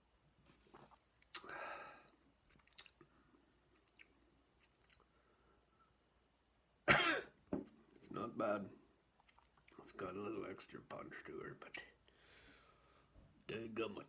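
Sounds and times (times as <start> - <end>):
lip smacks and tongue clicks: 0.7 - 1.5, 2.5 - 3.1, 3.7 - 5.1, 9.2 - 9.8.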